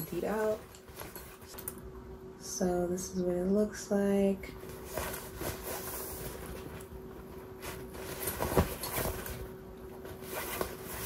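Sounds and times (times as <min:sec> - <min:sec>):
faint steady hum: 0:00.0 - 0:11.0
bag lining rustling: 0:04.7 - 0:11.0.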